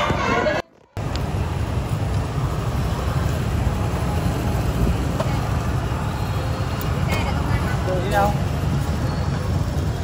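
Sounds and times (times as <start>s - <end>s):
motorbike traffic rumble: 0.0s - 10.0s.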